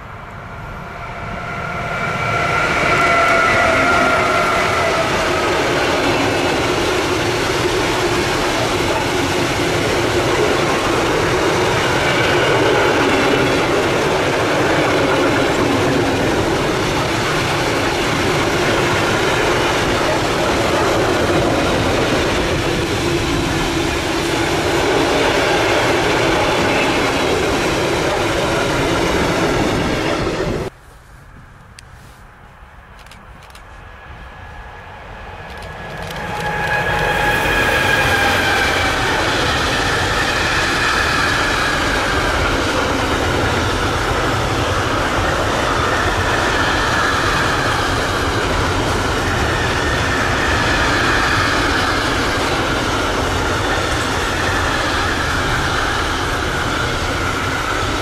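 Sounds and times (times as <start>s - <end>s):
freight train wheels on rail: 0.0s - 58.0s
wheels clickety-clack: 35.4s - 58.0s.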